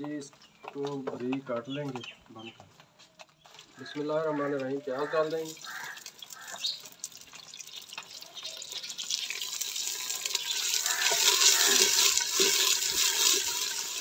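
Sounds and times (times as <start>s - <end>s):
onions sizzling in hot fat: 5.5s - 14.0s.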